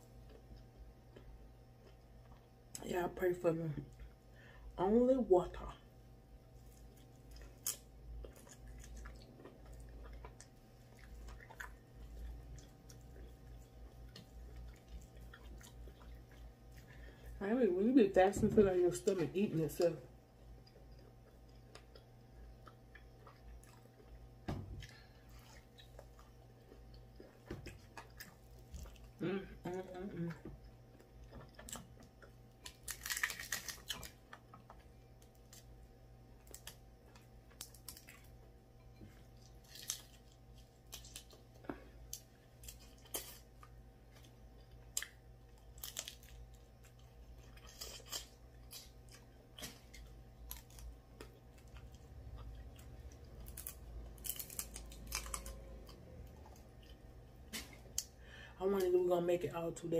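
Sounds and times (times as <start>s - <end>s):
steady low hum: 0.0s - 59.9s
chewing: 6.6s - 17.3s, 20.5s - 24.2s, 24.8s - 29.2s, 30.3s - 35.7s, 36.4s - 57.0s
seafood shell cracking: 32.6s - 34.6s, 53.4s - 55.5s.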